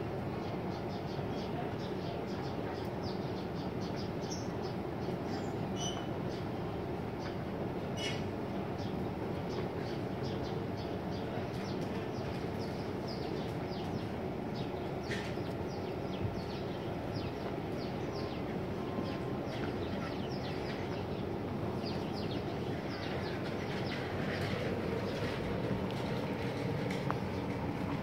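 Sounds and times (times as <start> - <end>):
small birds chirping: 8.8 - 27.9.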